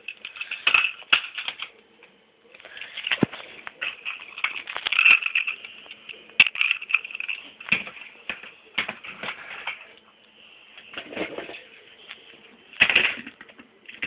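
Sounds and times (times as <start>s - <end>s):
plastic clicks and clatters: 0.0s - 1.7s, 2.6s - 10.0s.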